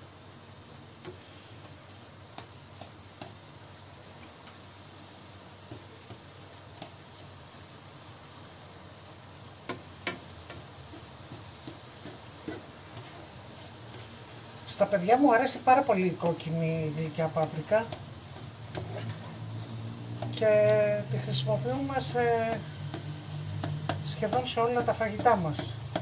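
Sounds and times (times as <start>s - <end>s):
ground beef sizzling: 0.0s - 26.0s
spatula scraping and tapping pan: 1.0s - 3.5s, 9.6s - 14.5s, 16.2s - 26.0s.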